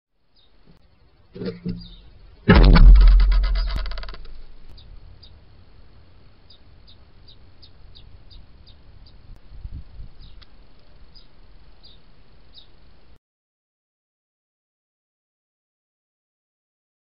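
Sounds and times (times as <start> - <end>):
steady light hiss: 0.2 - 13.2
low rumble: 1.4 - 5.0.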